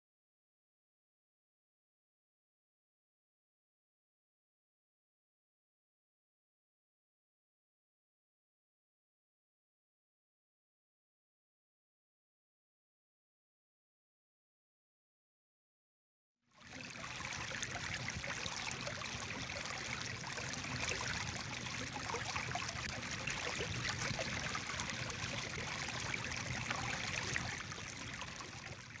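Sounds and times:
trickling stream: 0:16.6 - 0:29.0.

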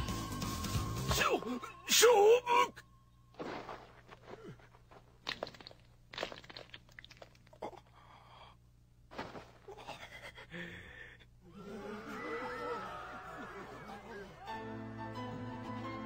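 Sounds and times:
fight crunches and thuds: 0:09.1 - 0:09.8.

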